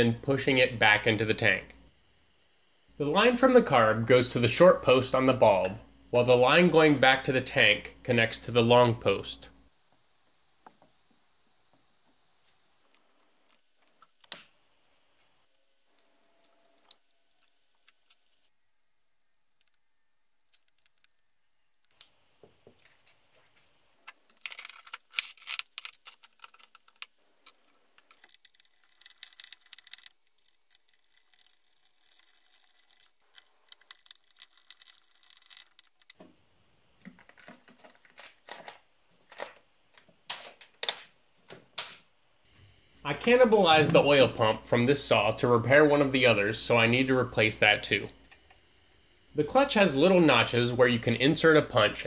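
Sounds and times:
plastic and metal parts clattering: 24.0s - 36.3s, 37.0s - 41.1s.

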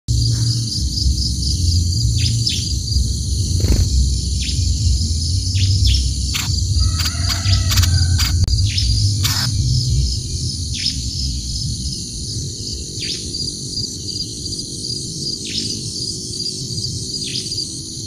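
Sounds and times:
low rumble: 0.1s - 13.0s
high insect drone: 0.1s - 18.0s
bird chirps: 0.3s - 13.4s.

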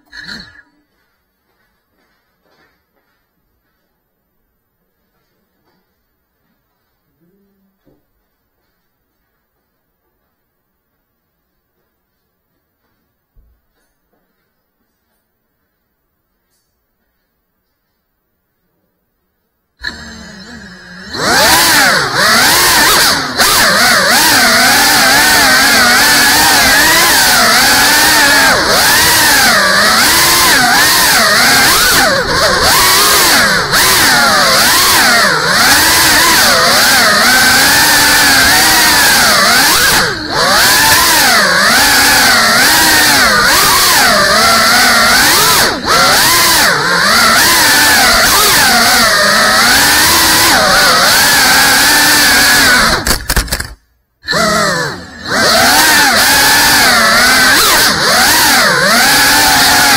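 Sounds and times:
drone propellers buzzing: 19.8s - 59.9s.

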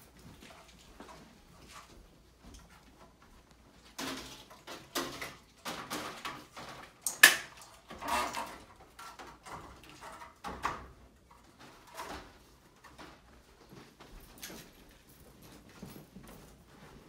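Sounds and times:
metal shelves scraping and clanking: 7.8s - 10.5s.

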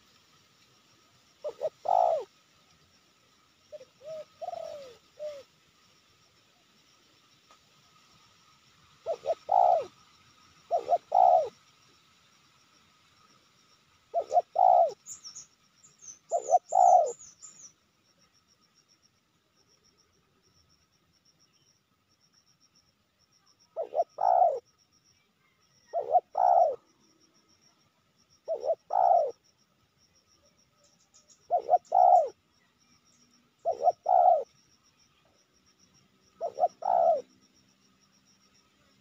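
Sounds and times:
dove cooing: 1.4s - 2.3s, 3.7s - 5.5s, 9.0s - 9.9s, 10.7s - 11.6s, 14.1s - 15.1s, 16.3s - 17.2s, 23.8s - 24.6s, 25.8s - 26.8s, 28.4s - 29.4s, 31.4s - 32.4s, 33.6s - 34.5s, 36.4s - 37.3s.

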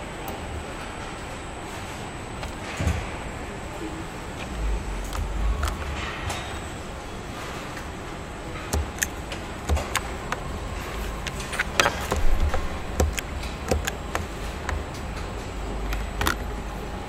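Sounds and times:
low machinery hum: 0.0s - 17.0s
metallic clicks and clanks of tools: 8.6s - 16.6s.

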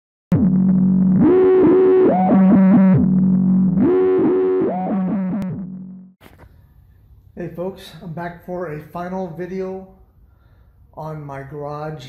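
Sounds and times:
synthesizer melody over low drone: 0.3s - 6.2s.

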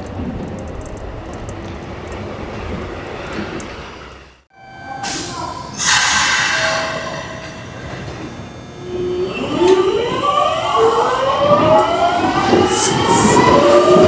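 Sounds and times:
electric train inverter whine: 3.1s - 14.0s.

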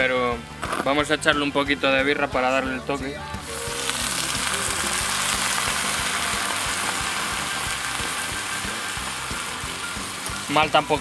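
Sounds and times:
beer sizzling in a frying pan: 3.4s - 11.0s.

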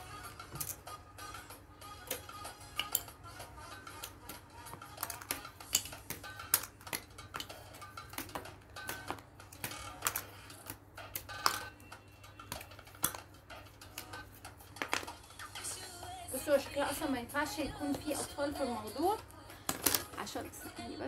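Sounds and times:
plastic pieces snapping out: 4.0s - 11.8s, 12.4s - 14.1s, 19.6s - 20.2s.

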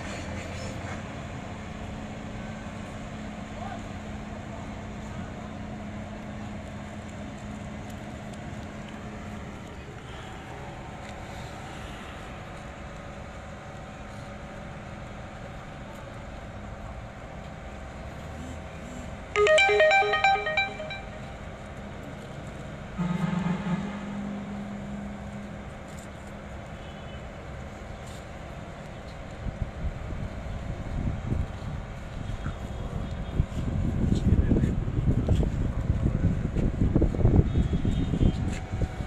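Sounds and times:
outdoor background noise: 0.0s - 39.0s
electronic ringtone melody: 19.4s - 21.4s.

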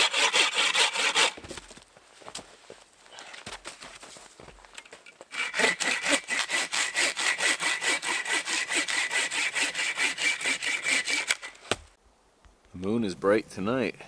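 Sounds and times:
hand saw cutting wood: 0.0s - 1.4s, 5.3s - 11.8s.

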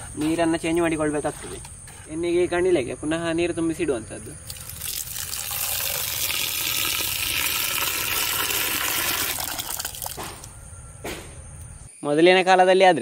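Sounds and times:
water pouring into a pot: 4.4s - 10.2s.

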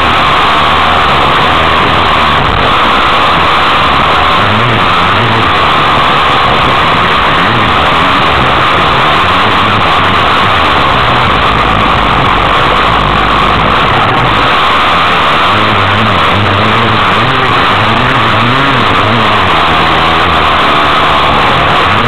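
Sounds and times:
dirt bike engine revving: 0.0s - 22.0s
wind noise on microphone: 0.0s - 22.0s.

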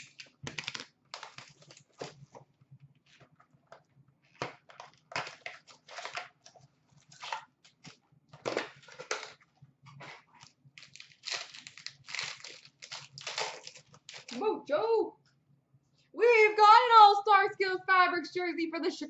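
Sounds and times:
wrappers crinkling and tearing: 0.0s - 2.4s, 4.4s - 9.4s, 10.0s - 14.4s.

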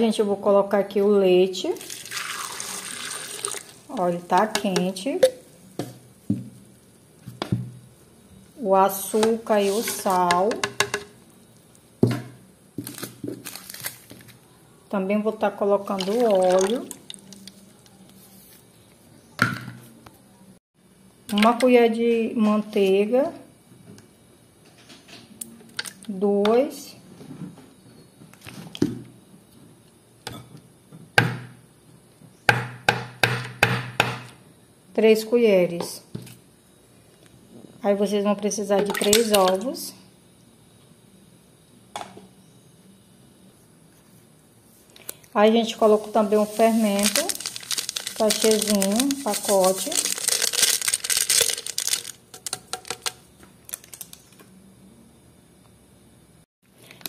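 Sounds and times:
yeast granules pouring: 1.8s - 3.9s, 16.0s - 17.6s, 45.9s - 53.2s
spoon tapping plastic blender jar: 10.3s - 11.1s.

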